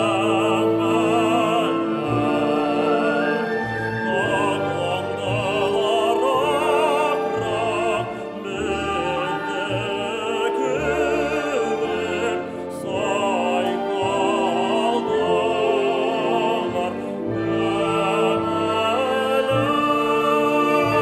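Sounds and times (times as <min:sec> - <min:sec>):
symphony orchestra with strings: 0:00.0 - 0:21.0
man singing with vibrato: 0:04.1 - 0:21.0.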